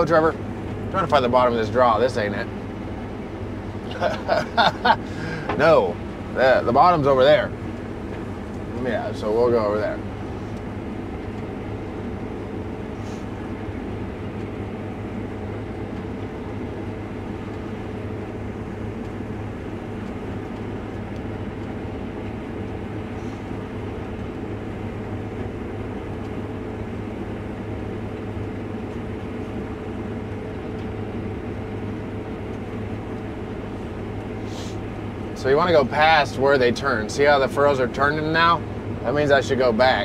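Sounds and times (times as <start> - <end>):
combine harvester engine drone: 0.0 - 40.0.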